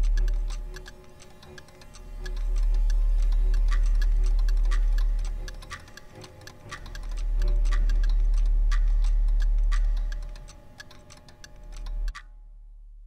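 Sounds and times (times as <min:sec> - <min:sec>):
clock-like ticking: 0:00.0 - 0:12.3
deep low drone: 0:06.8 - 0:10.4.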